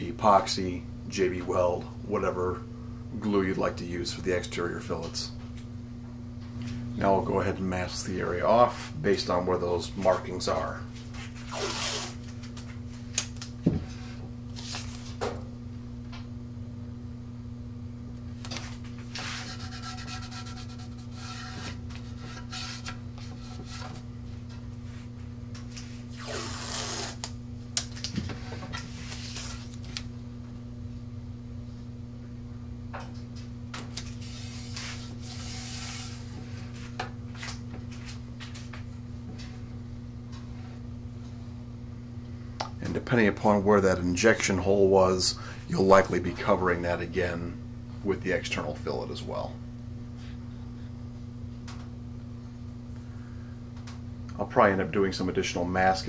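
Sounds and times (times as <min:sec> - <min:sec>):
steady low hum: 0:00.0 - 0:56.0
tape unrolling: 0:11.3 - 0:12.3, 0:26.1 - 0:28.1, 0:34.0 - 0:36.2
handling rubs: 0:18.6 - 0:24.1.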